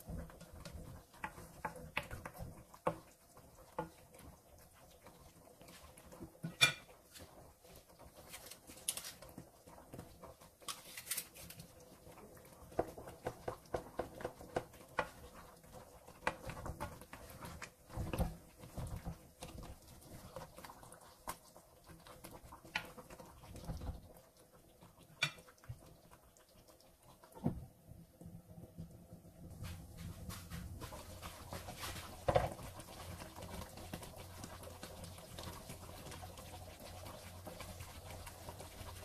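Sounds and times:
coconut milk bubbling in a pan: 0.0 - 39.0
spatula bumping in a pan: 6.4 - 7.0.

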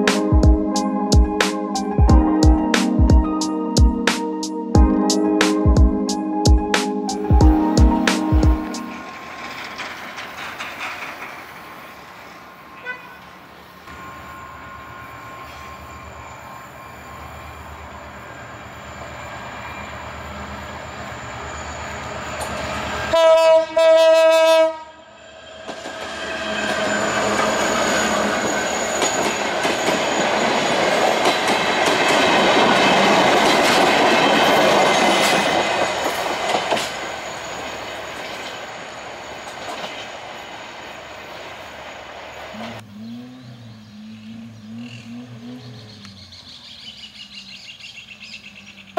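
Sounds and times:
train passing in loud rush: 0.0 - 42.8
diesel locomotive engine: 4.8 - 48.9
wheels clicking over rail joints: 7.9 - 13.0, 28.4 - 40.3
train horn blasts: 12.7 - 15.8, 23.0 - 25.1.

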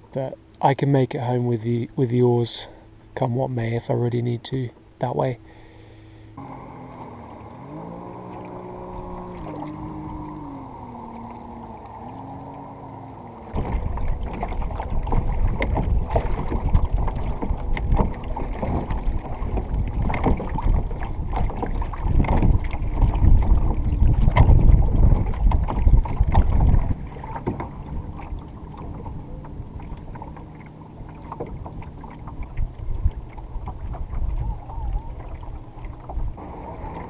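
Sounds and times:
oars knocking and splashing: 6.4 - 37.0
wind noise on microphone: 13.5 - 29.8, 32.3 - 37.0.

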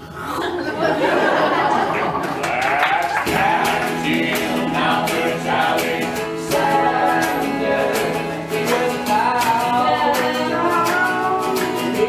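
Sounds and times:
voices singing: 2.4 - 12.0
guitar strumming: 3.2 - 12.0.

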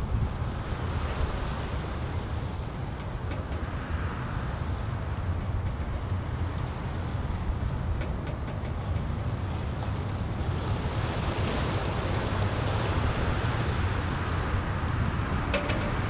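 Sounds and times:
wind buffeting microphone: 0.0 - 16.0
wind rushing through pine tree: 9.0 - 16.0.

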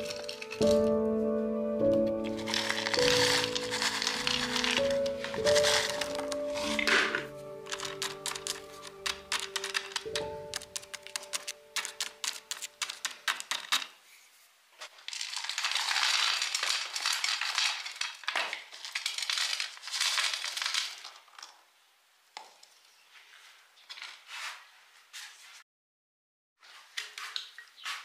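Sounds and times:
gravel pouring onto rocks: 2.1 - 13.9, 15.0 - 21.6.

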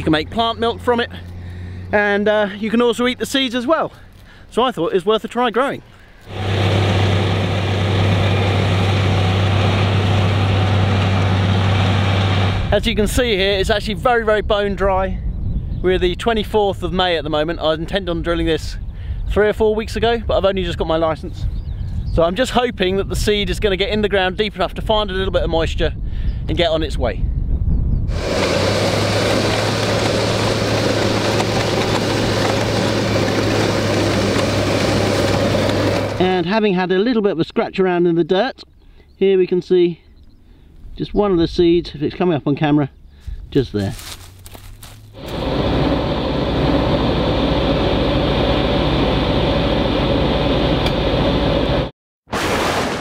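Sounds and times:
tractor engine running: 6.2 - 13.2, 28.1 - 36.4, 43.9 - 51.9.

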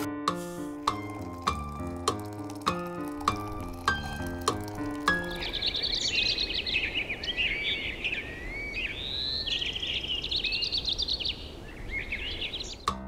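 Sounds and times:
songbirds chirping and trilling: 4.9 - 12.9.

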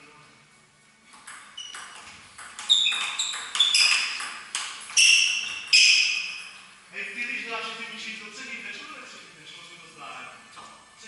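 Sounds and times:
table tennis ball clicking off bats: 1.1 - 6.0.

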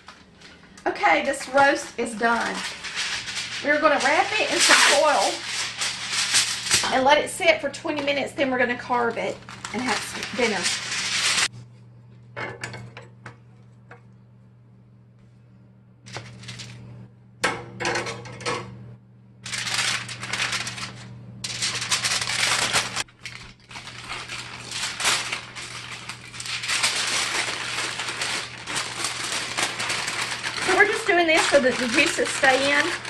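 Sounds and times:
aluminium foil crackling: 0.0 - 11.5, 16.1 - 16.8, 19.4 - 33.0.

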